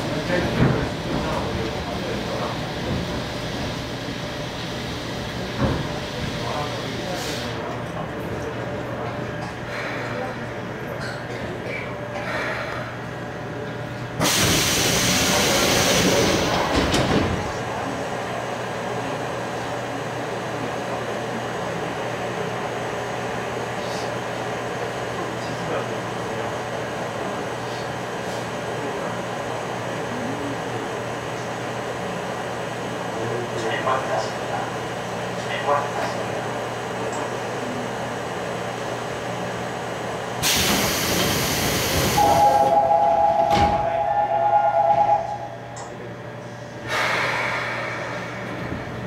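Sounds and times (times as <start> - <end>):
subway car ventilation hum: 0.0 - 49.0
loud hiss of released air: 14.2 - 16.5, 40.4 - 42.4, 46.9 - 48.4
high buzzer tone: 42.2 - 45.5.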